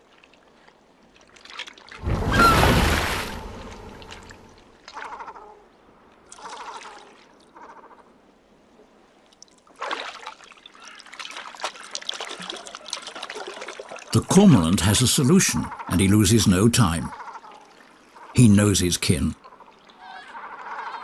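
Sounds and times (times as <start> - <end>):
water splashing: 0.0 - 5.0, 9.2 - 15.2
short bird calls: 2.2 - 4.2.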